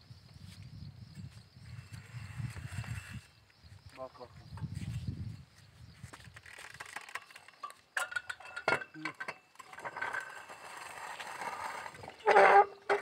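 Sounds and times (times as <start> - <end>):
metal pipe clinking and scraping: 7.0 - 13.0.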